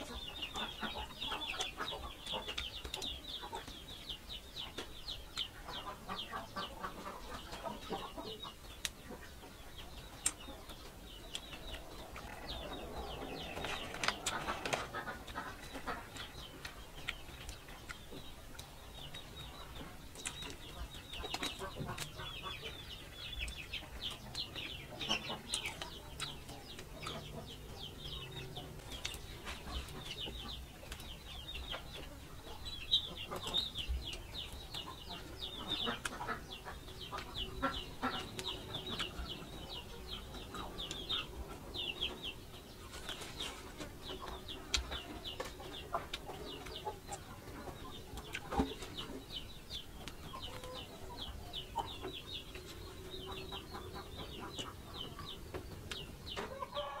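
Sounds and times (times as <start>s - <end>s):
crunchy chewing clicks: 0.0s - 3.9s, 4.6s - 5.6s, 9.8s - 42.2s, 44.0s - 50.9s
chickens clucking: 0.0s - 57.0s.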